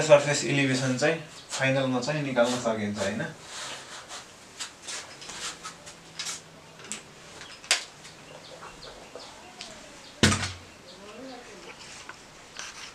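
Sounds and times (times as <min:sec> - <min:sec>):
faint bird calls: 0:07.3 - 0:11.8.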